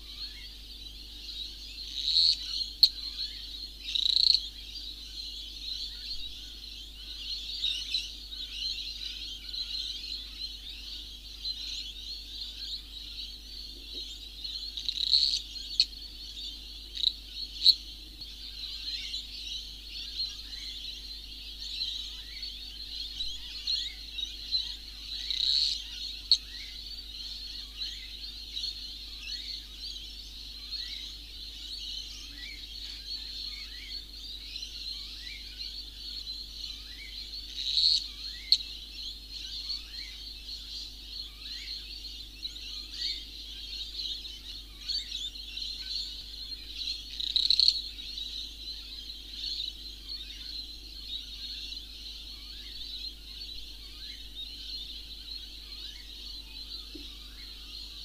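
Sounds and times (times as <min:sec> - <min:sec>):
high rapid chirping calls: 0:03.9 - 0:04.4, 0:45.7 - 0:47.8.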